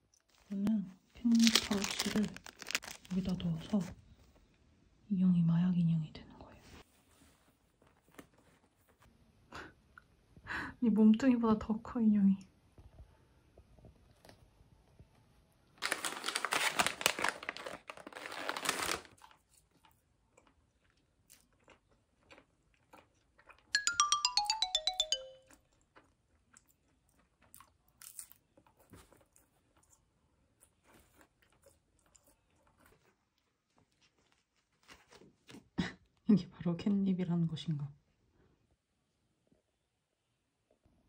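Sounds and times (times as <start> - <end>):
crinkly crunching rustle: 0.2 - 4.0, 15.8 - 20.5, 27.4 - 35.6.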